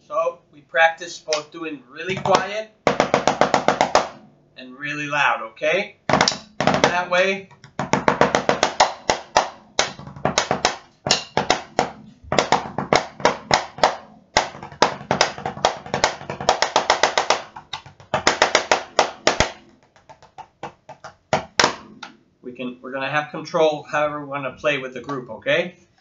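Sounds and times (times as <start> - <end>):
drumsticks on practice pad: 8.3 - 19.7.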